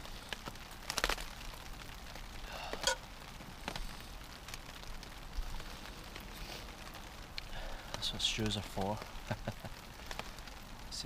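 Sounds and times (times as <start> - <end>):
faint steady hiss: 0.0 - 11.0.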